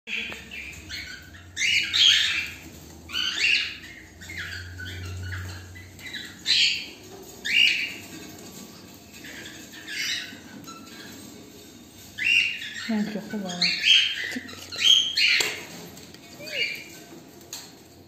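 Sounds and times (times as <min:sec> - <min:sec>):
cockatiels giving hissy calls: 0:00.6 - 0:11.2, 0:13.6 - 0:17.1.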